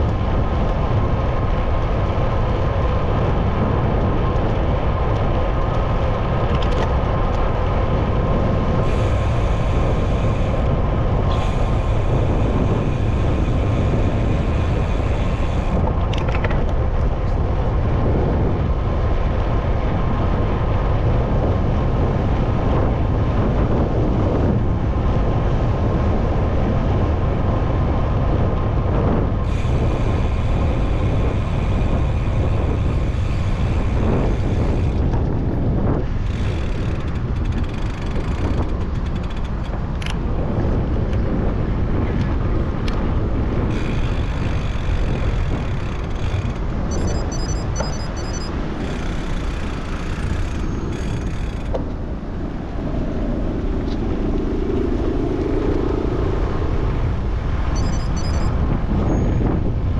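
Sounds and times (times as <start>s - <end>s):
passing road vehicles: 0.0s - 59.9s
wind on microphone: 0.0s - 59.9s.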